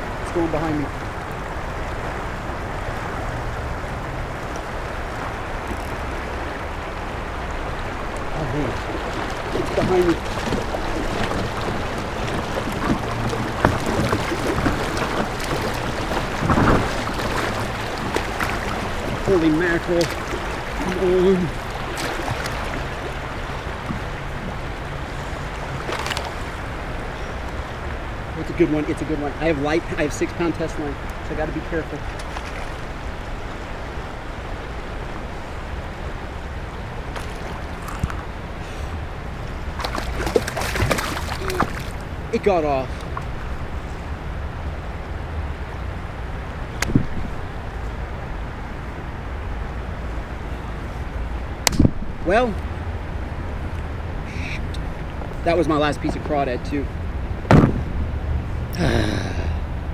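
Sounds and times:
wind rumble on microphone: 0.0 - 30.1, 43.0 - 58.8
river water rushing and lapping: 0.0 - 59.9.

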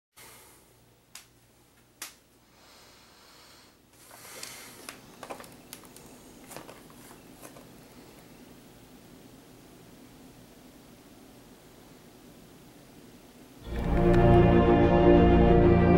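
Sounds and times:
rustling: 4.0 - 8.4.

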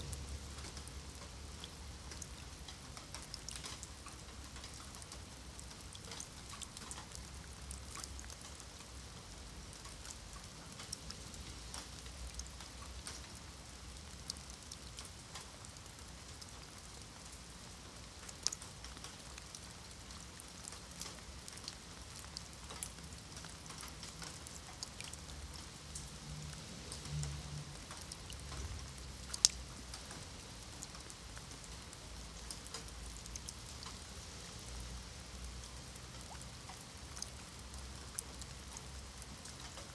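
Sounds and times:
faint low rumble: 0.0 - 2.9
rain pattering on stone: 0.0 - 39.9.

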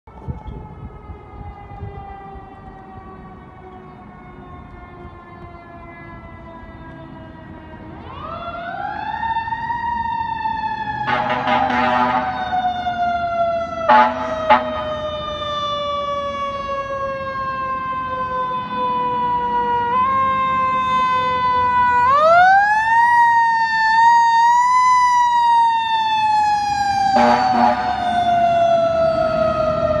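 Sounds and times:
fire engine siren wailing: 0.1 - 30.0
horn blasts: 11.0 - 12.5, 13.9 - 15.0, 27.1 - 28.0.

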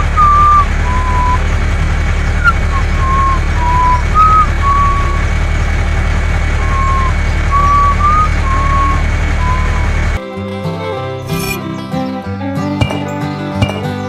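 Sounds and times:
high whistle-like tones: 0.0 - 1.5, 2.4 - 5.3, 6.6 - 10.2, 10.8 - 11.8
truck engine rumble: 0.0 - 14.0
guitar music: 6.6 - 14.0.

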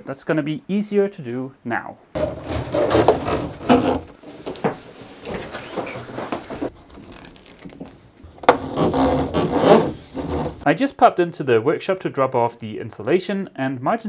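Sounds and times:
plastic conduit rustling and scraping: 2.2 - 10.6.

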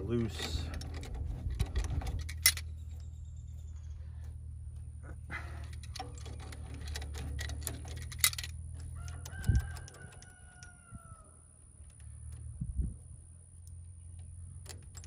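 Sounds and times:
wrench clicking on bolts: 5.6 - 10.8
rooster crowing: 8.8 - 11.6.

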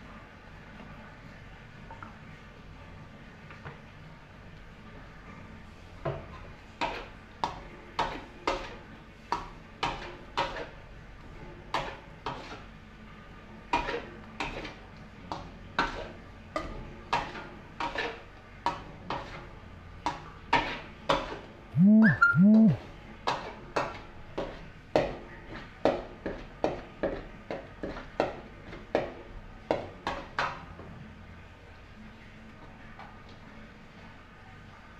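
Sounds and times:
rising and falling calls: 21.8 - 22.8.

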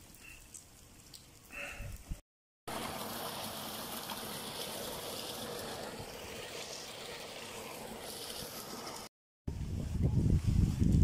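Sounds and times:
running water: 2.7 - 9.1.

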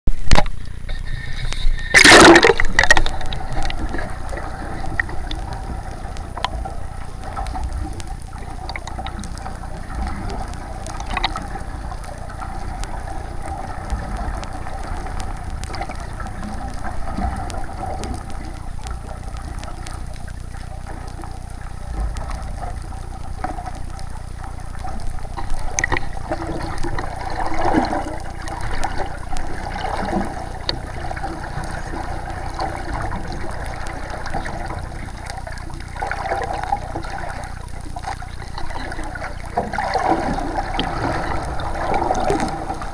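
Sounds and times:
faint steady hum: 0.1 - 42.9
underwater rush and gurgle: 0.1 - 42.9
splash into water: 2.0 - 3.7.

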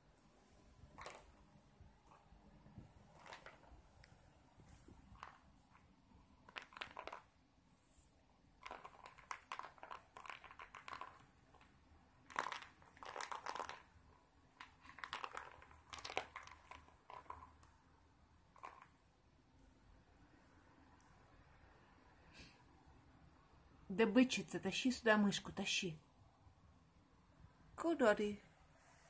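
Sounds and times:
cat rustling and scratching toy: 0.1 - 21.2.

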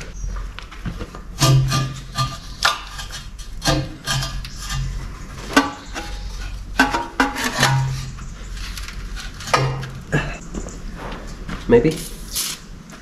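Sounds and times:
low steady hum: 0.0 - 13.0
metal clanks and knocks: 0.9 - 10.8.

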